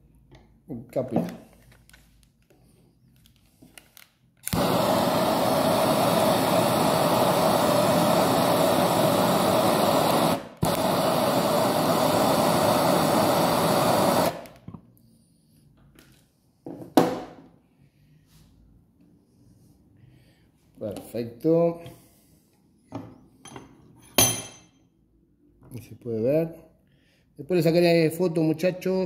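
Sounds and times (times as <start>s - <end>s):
torch flame rushing: 4.5s - 14.6s.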